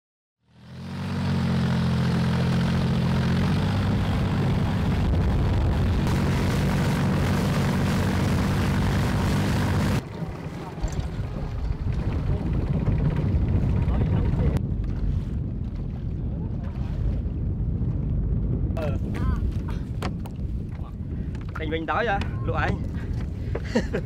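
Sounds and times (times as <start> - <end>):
motorboat engine drone: 0.4 - 14.6
rushing water: 1.7 - 12.4
wind noise: 3.0 - 10.0, 10.7 - 24.0.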